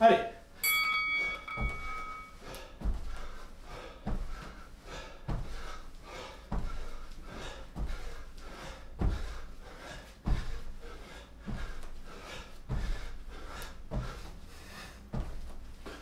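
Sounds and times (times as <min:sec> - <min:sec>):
timer beep: 0:00.6 - 0:02.4
person breathing: 0:01.4 - 0:16.0
jump landings thudding on mat: 0:10.3 - 0:10.7.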